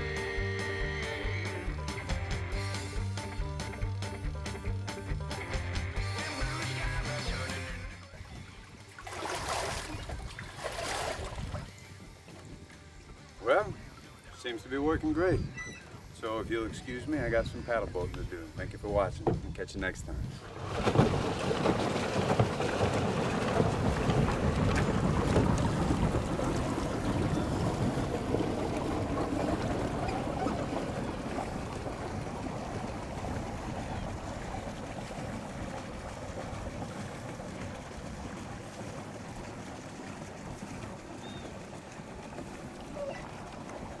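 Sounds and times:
paddle wheel churning water: 0:00.0 - 0:44.0
wind on microphone: 0:09.2 - 0:11.7, 0:14.9 - 0:41.6.

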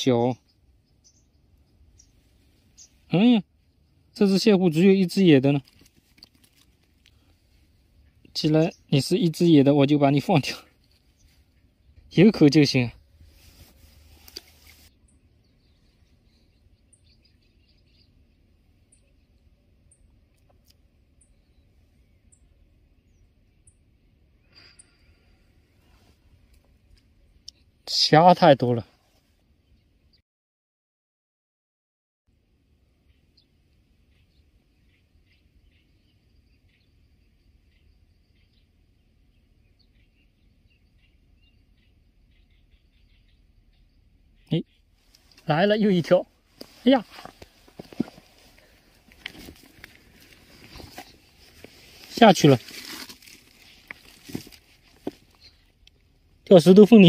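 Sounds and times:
faint high bird chirps: 0:00.0 - 0:05.7, 0:14.0 - 0:26.2, 0:33.0 - 0:47.4, 0:53.4 - 0:57.0
faint rustle: 0:05.5 - 0:08.4, 0:13.0 - 0:15.0, 0:24.5 - 0:27.2, 0:44.9 - 0:56.3
faint high chirps: 0:21.2 - 0:25.6.

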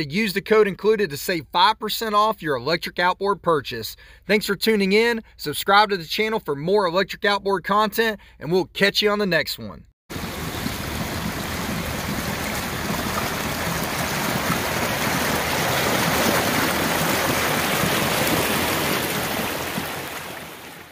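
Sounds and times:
boat wake splashing water: 0:10.1 - 0:20.9.

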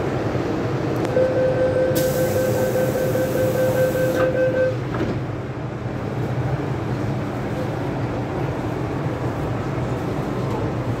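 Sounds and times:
train low rumble: 0:00.0 - 0:11.0
door-closing warning tone: 0:01.1 - 0:05.1
hiss: 0:02.0 - 0:04.2
train doors knocking shut: 0:04.0 - 0:05.3.

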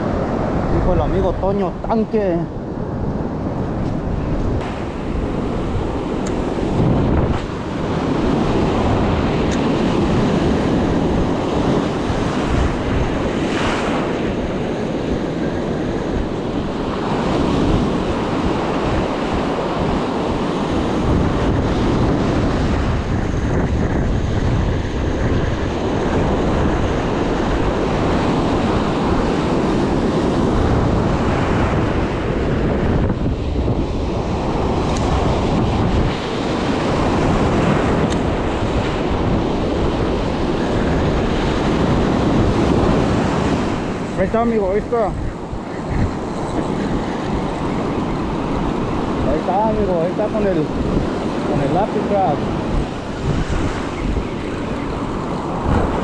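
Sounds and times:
ocean surf on beach: 0:00.0 - 0:56.0
wind buffeting microphone: 0:00.0 - 0:56.0.

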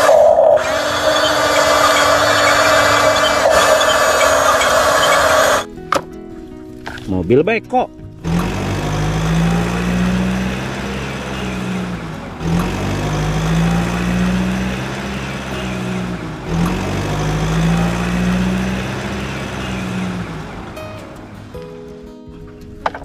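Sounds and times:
engine running steadily: 0:00.0 - 0:05.7, 0:08.2 - 0:21.6.

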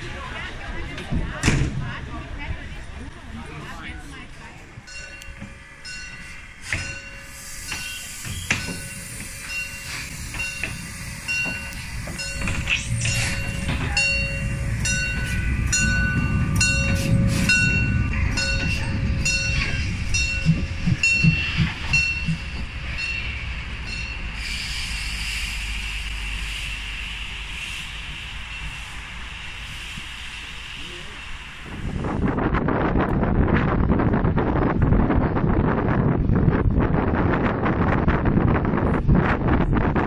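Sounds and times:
locomotive running gear clanking: 0:04.8 - 0:24.3
steam hiss: 0:06.2 - 0:20.2, 0:21.3 - 0:32.3.

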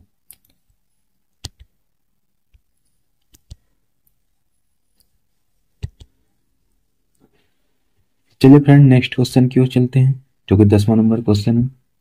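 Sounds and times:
faint clicks of writing on screen: 0:00.2 - 0:01.8, 0:02.4 - 0:06.2.

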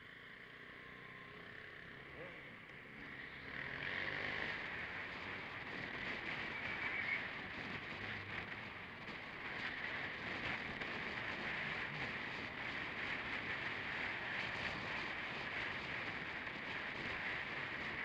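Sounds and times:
scooter engine running: 0:00.0 - 0:18.0
wind and road noise: 0:00.0 - 0:18.0.

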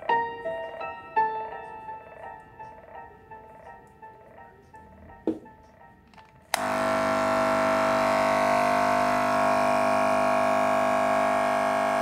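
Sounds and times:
electric hair clipper buzzing: 0:06.5 - 0:12.0.

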